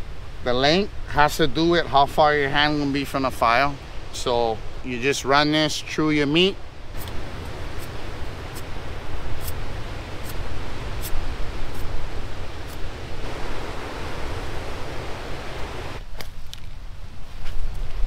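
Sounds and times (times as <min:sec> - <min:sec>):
ocean surf: 0:00.0 - 0:16.0
wind: 0:00.0 - 0:18.0.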